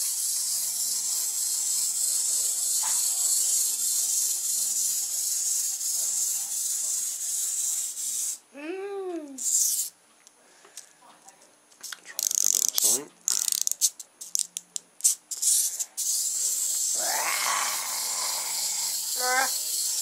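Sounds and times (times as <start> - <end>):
clockwork toy whirring: 0.0 - 8.4, 9.4 - 9.9, 12.2 - 14.5, 15.3 - 20.0.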